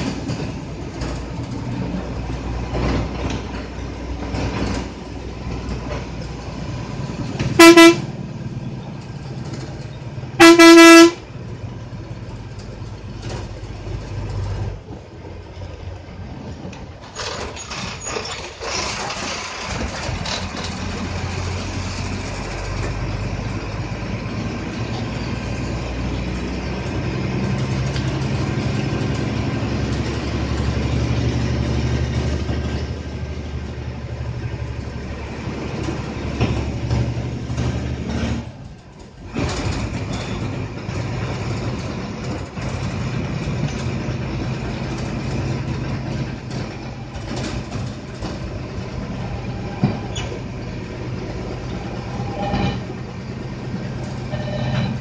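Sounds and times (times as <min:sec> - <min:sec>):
bus engine running: 0:00.0 - 0:55.0
road noise inside bus: 0:00.0 - 0:55.0
bus horn blasts: 0:07.4 - 0:08.4, 0:10.4 - 0:11.3, 0:51.7 - 0:53.0, 0:54.2 - 0:55.0.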